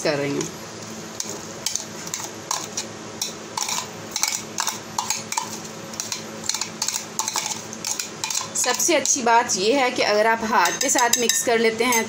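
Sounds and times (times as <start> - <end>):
metal spoon clinking on glass bowls: 1.7 - 9.2, 10.6 - 12.0.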